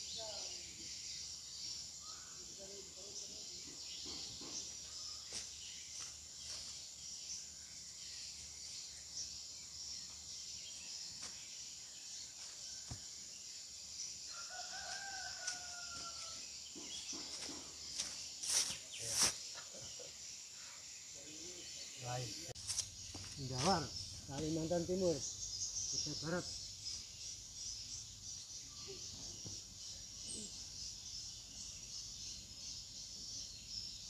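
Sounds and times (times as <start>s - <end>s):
high background hiss: 0.0s - 34.0s
rooster crowing: 14.3s - 16.4s.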